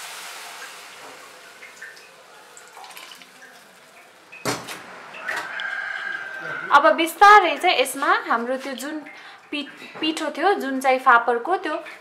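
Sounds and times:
water hissing in hot pan: 0.0s - 4.0s.

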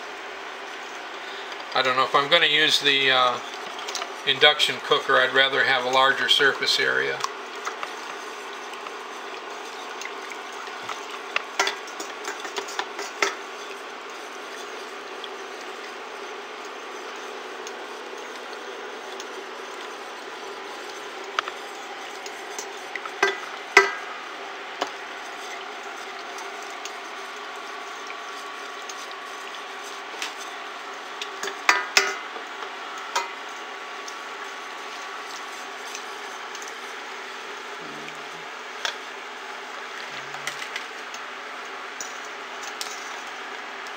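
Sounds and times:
steady hum: 0.0s - 42.5s
spatula scraping a saucepan: 3.0s - 24.1s, 24.8s - 37.4s.

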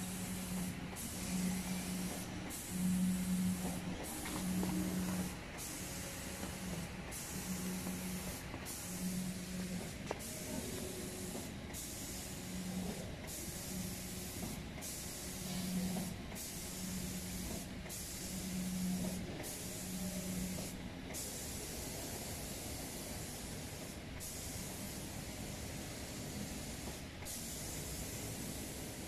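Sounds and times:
low machine hum: 0.0s - 21.0s
spray gun hissing: 0.0s - 29.0s.

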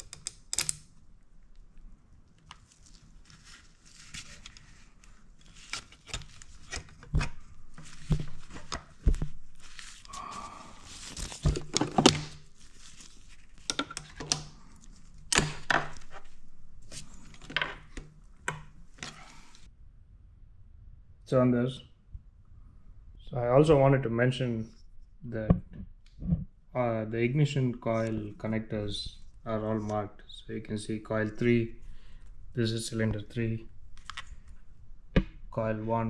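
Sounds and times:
tools and parts clicking and knocking: 0.0s - 0.9s, 13.6s - 14.5s
rustling: 2.4s - 13.7s.

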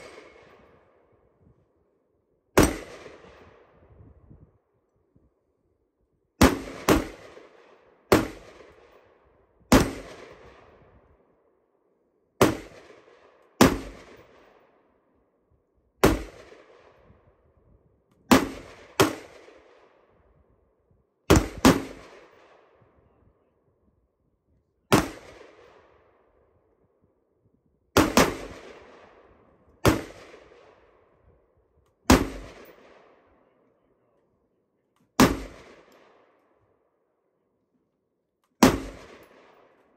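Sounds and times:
rifle shots with echo: 0.0s - 1.3s, 2.6s - 3.8s, 6.4s - 11.1s, 12.4s - 14.9s, 16.0s - 17.4s, 18.3s - 20.2s, 21.3s - 23.0s, 24.9s - 26.4s, 28.0s - 33.9s, 35.1s - 36.6s, 38.6s - 39.9s.

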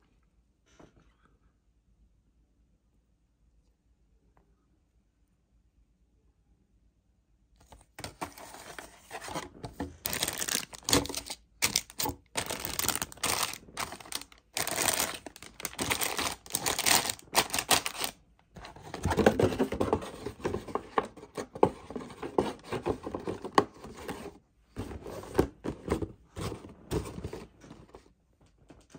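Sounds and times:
plastic bags crinkling: 9.9s - 19.7s.

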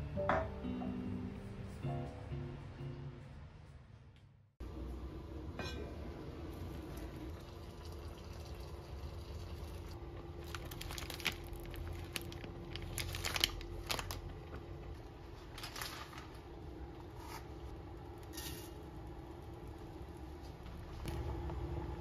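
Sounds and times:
plastic wrapper crinkling: 10.4s - 14.5s, 15.4s - 16.4s.

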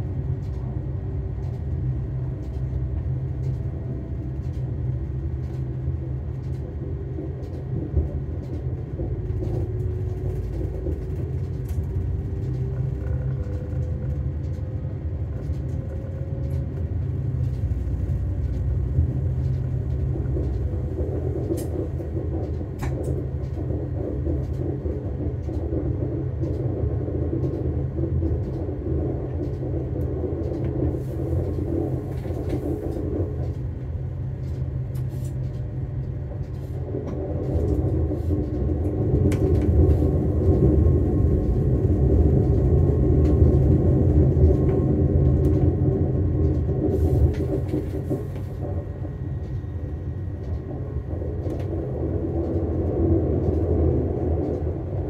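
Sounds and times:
train clicks: 0.0s - 55.0s
train rumbling along track: 0.0s - 55.0s.

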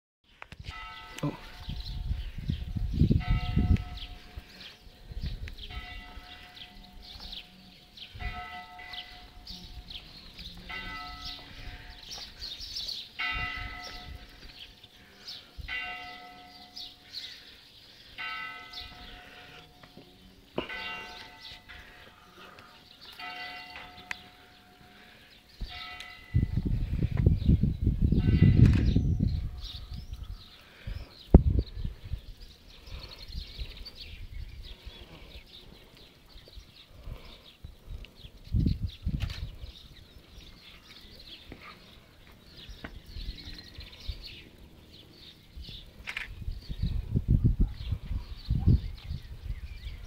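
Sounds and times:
microphone rumble: 1.3s - 4.4s, 25.6s - 30.4s.

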